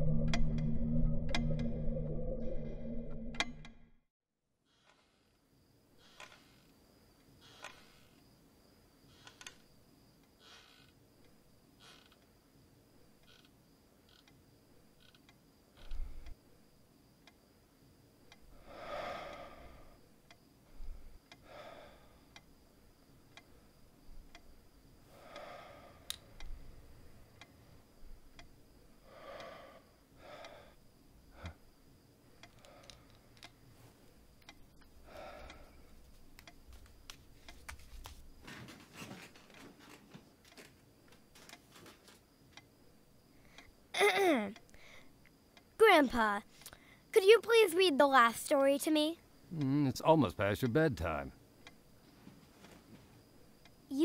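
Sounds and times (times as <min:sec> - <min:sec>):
wooden rocking chair creaking: 0:06.0 - 0:06.8, 0:07.5 - 0:08.2, 0:09.1 - 0:09.6, 0:10.4 - 0:11.0, 0:11.8 - 0:12.3, 0:36.7 - 0:42.6
faint clicks: 0:32.4 - 0:33.6, 0:34.4 - 0:38.2.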